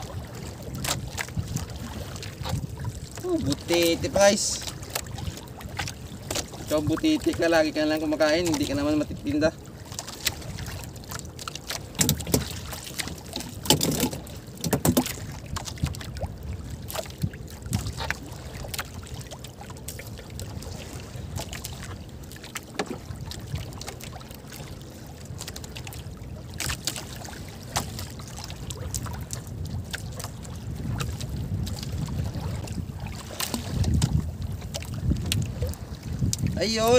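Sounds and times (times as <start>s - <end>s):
water against boat: 0.0s - 36.9s
wind: 0.0s - 36.9s
light knocks and clicks: 13.4s - 15.2s.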